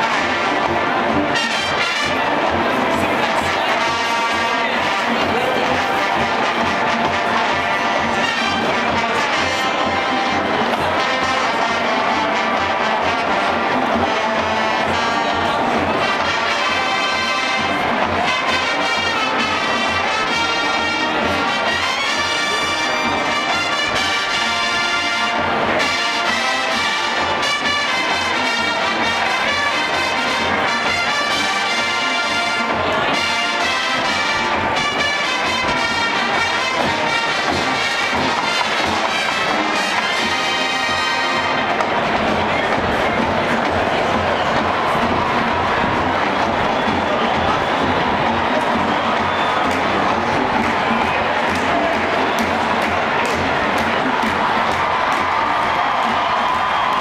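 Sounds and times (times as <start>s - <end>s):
marching band brass playing: 0.0s - 57.0s.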